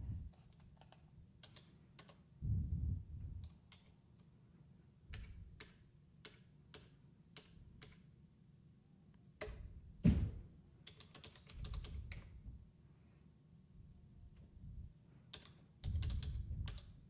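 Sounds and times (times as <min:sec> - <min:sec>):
keyboard keystrokes: 0:00.3 - 0:02.2, 0:03.4 - 0:04.0, 0:05.1 - 0:08.0, 0:10.8 - 0:12.3, 0:15.3 - 0:17.0
low thump: 0:10.0 - 0:10.4.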